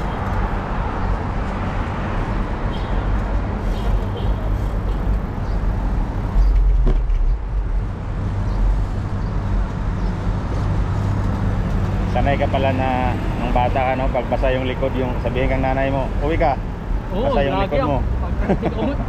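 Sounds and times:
car traffic: 0.0s - 19.0s
wind rumble: 4.5s - 12.1s.

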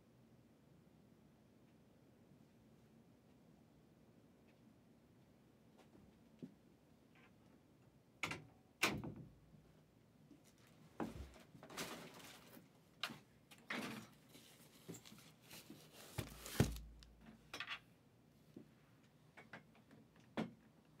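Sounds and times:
cardboard box scraping and rustling: 14.4s - 17.0s.

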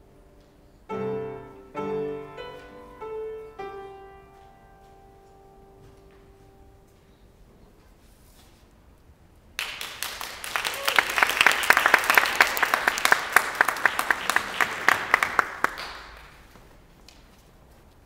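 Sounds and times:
audience applauding: 9.6s - 16.6s.

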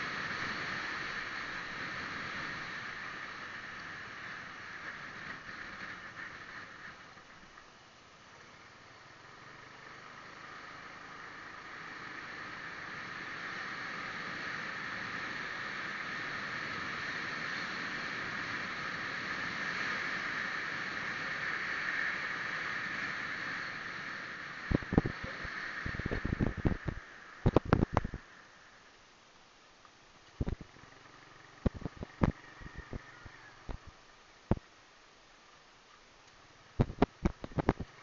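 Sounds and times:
small motorcycle running: 8.3s - 28.4s, 30.4s - 34.0s.

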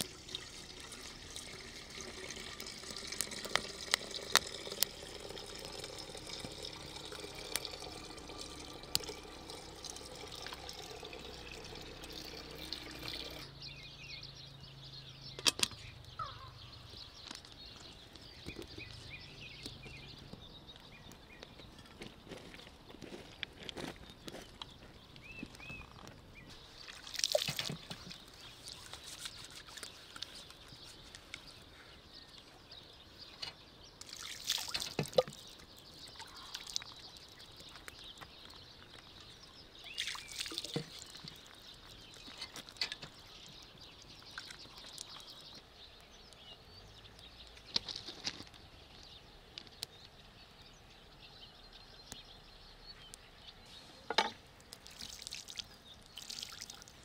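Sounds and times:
water pouring and splashing: 0.0s - 13.5s, 26.5s - 31.6s, 34.0s - 45.6s, 54.7s - 57.0s.

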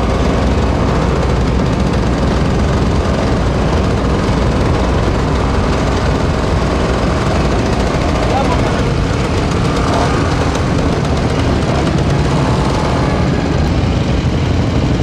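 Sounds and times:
motorcycle engines rumbling: 0.0s - 15.0s.

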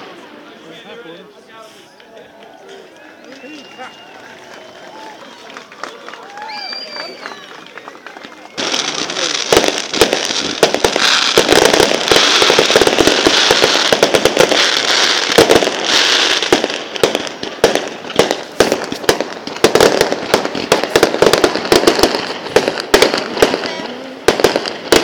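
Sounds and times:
fireworks cracking and popping: 2.0s - 25.0s
fireworks hiss: 8.6s - 25.0s.

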